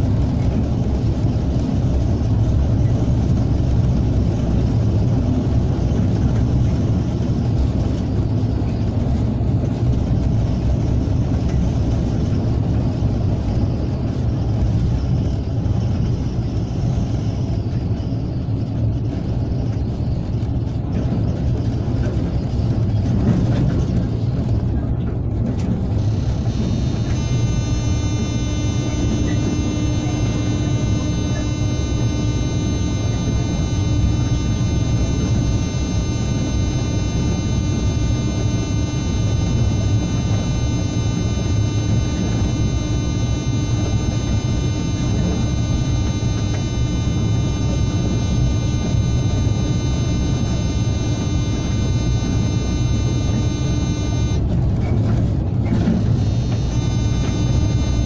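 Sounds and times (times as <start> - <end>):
train running gear rumble: 0.0 - 27.5
high electric whine: 0.0 - 58.0.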